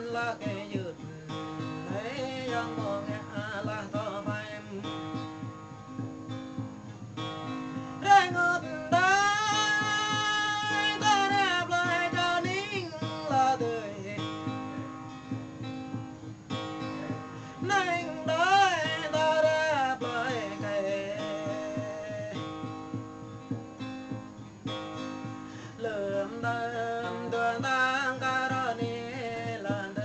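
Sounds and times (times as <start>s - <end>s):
person singing: 0.0s - 5.5s, 7.4s - 15.6s, 16.5s - 23.6s, 25.0s - 30.0s
plucked guitar: 0.0s - 30.0s.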